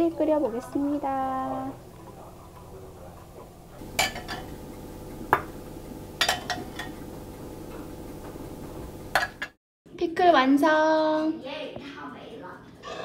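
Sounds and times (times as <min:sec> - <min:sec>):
faint steady hum: 0:00.0 - 0:09.5
metal spoon clinking on glass pot: 0:04.0 - 0:04.6, 0:06.2 - 0:07.0.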